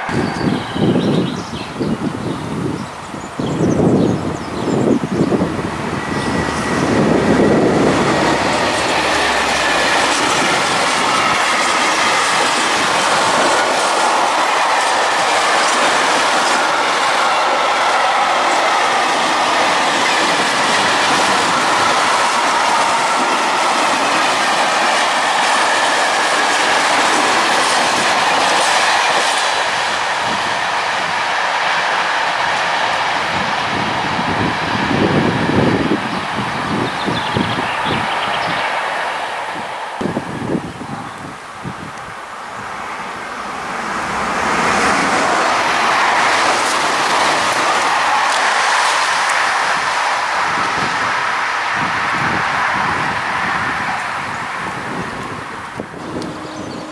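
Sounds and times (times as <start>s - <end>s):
train wheels rumbling on rails: 0.0s - 56.9s.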